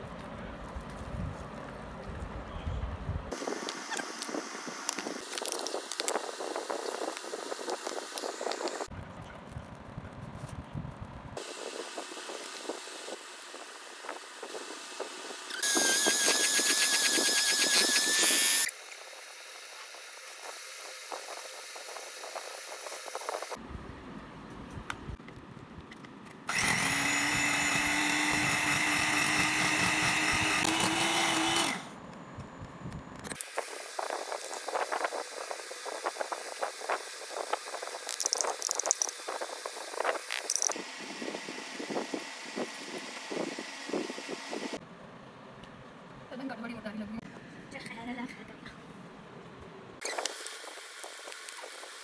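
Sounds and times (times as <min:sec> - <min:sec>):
electric hand mixer whine: 0:11.4 - 0:23.6, 0:26.5 - 0:32.0, 0:38.8 - 0:44.8.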